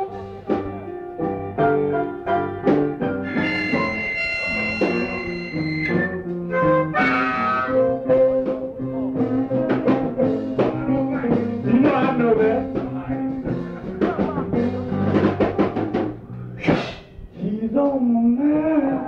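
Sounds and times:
steady drum beat: 0:00.0 - 0:17.2
blues band playing: 0:00.0 - 0:17.6
harmonica bent notes: 0:03.2 - 0:08.1.

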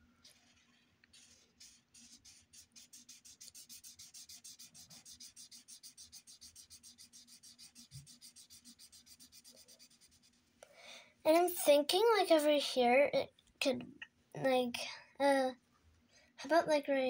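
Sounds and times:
marker scribbling on paper: 0:01.1 - 0:10.5.

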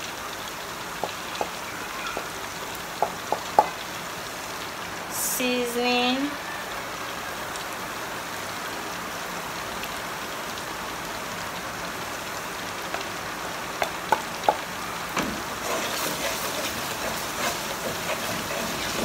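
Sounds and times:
onions sizzling in oil: 0:00.0 - 0:10.6, 0:11.2 - 0:19.0
wooden spatula knocks: 0:03.0 - 0:03.7
stirring scraping: 0:15.4 - 0:19.0.

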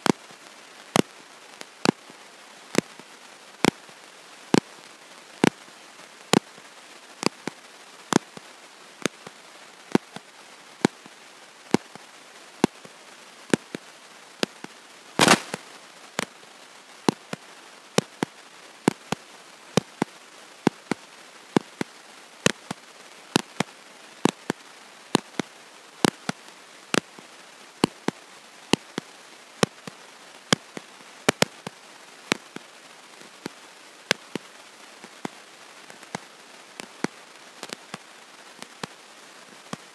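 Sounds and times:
crackle: 0:00.0 - 0:39.9
steady hiss: 0:00.0 - 0:39.9.

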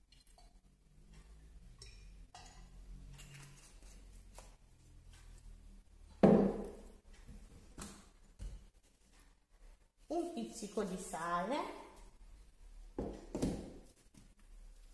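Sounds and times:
glass container knocking on worktop: 0:06.2 - 0:06.7.

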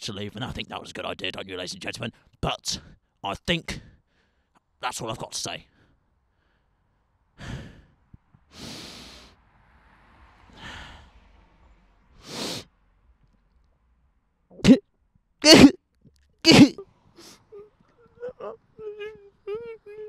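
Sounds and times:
man breathing heavily and sighing: 0:07.4 - 0:09.4, 0:10.6 - 0:11.2
man grunting: 0:15.4 - 0:15.8, 0:16.5 - 0:16.8.

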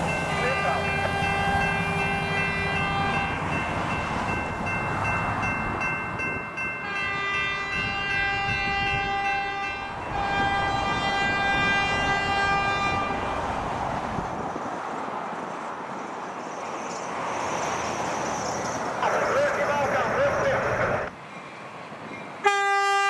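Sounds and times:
diesel locomotive running: 0:00.0 - 0:23.0
train horn long blasts: 0:00.5 - 0:03.5, 0:06.8 - 0:13.4, 0:22.4 - 0:23.0.

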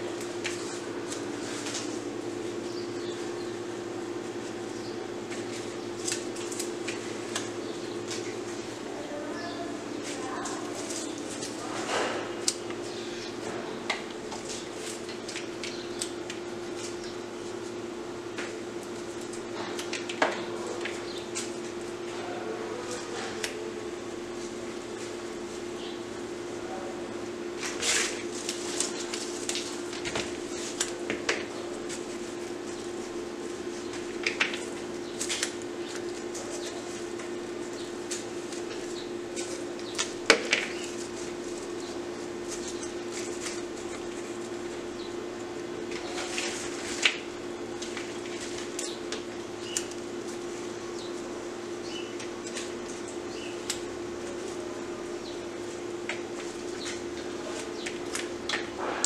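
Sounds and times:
steady background hum: 0:00.0 - 0:59.0
rose stems rustling and clicking: 0:05.2 - 0:08.7, 0:10.0 - 0:12.8, 0:27.6 - 0:44.7.

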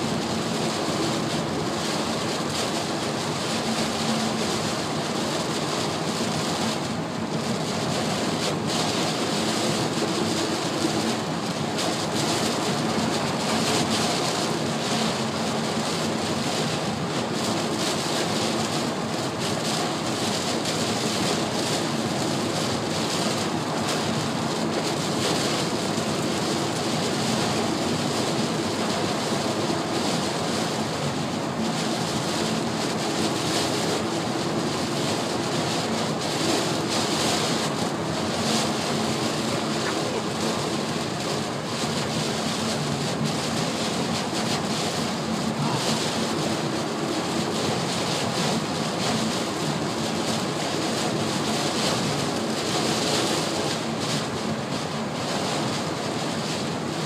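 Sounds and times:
heavy rain on car roof: 0:00.0 - 0:57.0
road and tyre noise: 0:00.0 - 0:57.0.

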